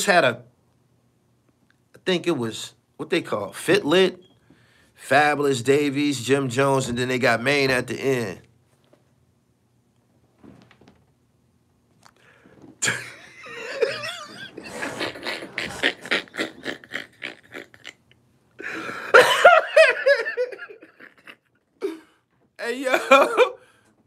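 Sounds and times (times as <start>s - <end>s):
man laughing hard: 12.8s - 18.0s, 18.6s - 22.1s, 22.7s - 23.6s.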